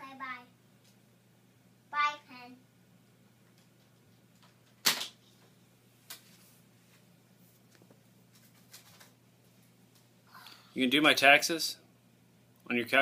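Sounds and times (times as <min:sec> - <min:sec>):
low steady hum: 0:00.0 - 0:13.0.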